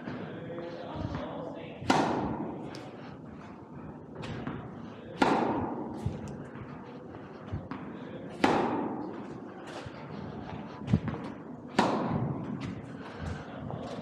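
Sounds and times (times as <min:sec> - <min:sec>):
echoing racquet strikes: 0:00.0 - 0:14.0
tennis ball bounces: 0:01.0 - 0:02.9, 0:04.2 - 0:06.7, 0:07.5 - 0:09.9, 0:10.8 - 0:12.8.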